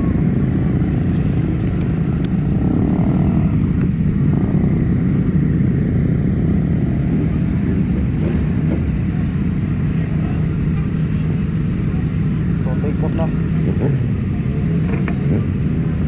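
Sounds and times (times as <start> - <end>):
rushing air: 0.0 - 14.8
motorcycle engine rumble: 0.0 - 16.0.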